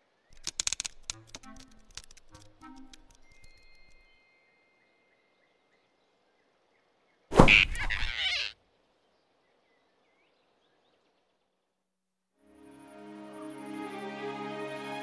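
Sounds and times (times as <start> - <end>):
cartoon hit and rushing noise: 7.3 - 8.4.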